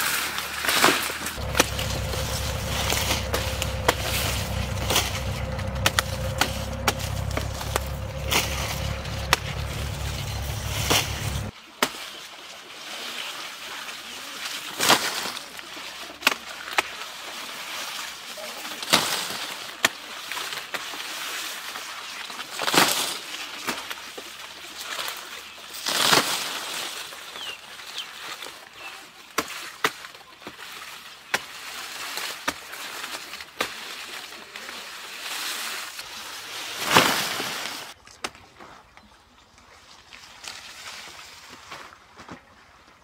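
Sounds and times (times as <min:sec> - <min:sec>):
cane leaves rustling: 0:00.0 - 0:11.5
low steady hum: 0:01.4 - 0:11.5.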